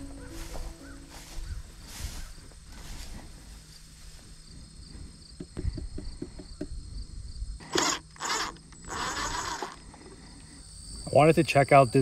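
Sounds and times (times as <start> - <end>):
insects buzzing: 0.0 - 12.0
soft handling knocks: 5.3 - 6.8
cordless driver running: 7.6 - 9.8.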